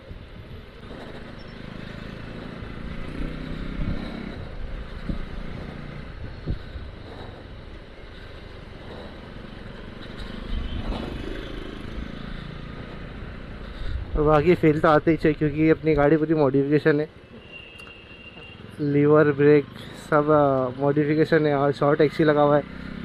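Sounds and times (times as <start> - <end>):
motorcycle engine running: 0.8 - 13.8.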